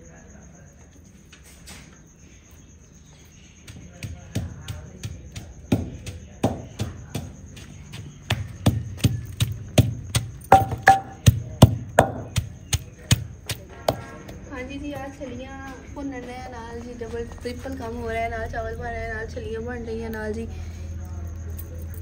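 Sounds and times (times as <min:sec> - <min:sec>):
wooden pestle pounding in mortar: 0:03.6 - 0:14.4.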